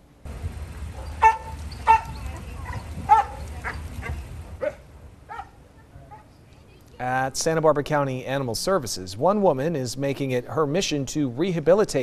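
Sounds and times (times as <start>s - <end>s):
dog barking and yipping: 0.8s - 6.2s.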